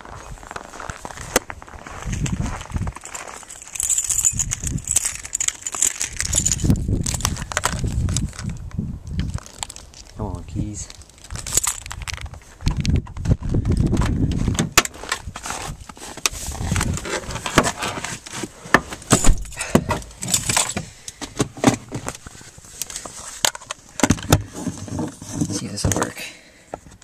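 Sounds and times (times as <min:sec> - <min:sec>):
car keys jangling: 0:02.9 - 0:07.3, 0:11.0 - 0:12.3, 0:19.0 - 0:21.2.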